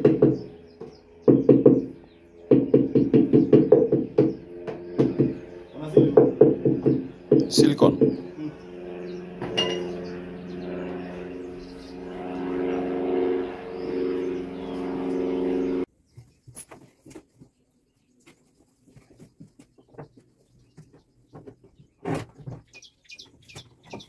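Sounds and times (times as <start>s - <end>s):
steady multi-pitched hum: 0.0s - 15.9s
bird chirps: 0.2s - 12.9s, 13.6s - 16.7s, 22.6s - 24.0s.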